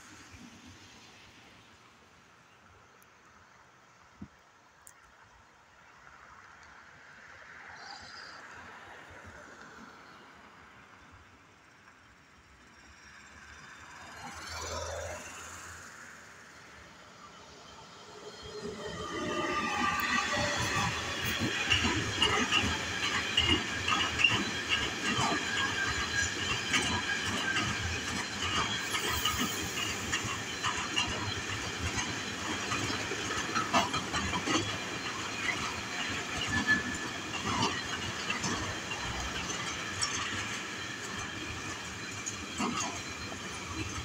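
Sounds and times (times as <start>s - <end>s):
train wheels rumbling on rail: 11.6s - 44.0s
high wheel squeal: 17.7s - 44.0s.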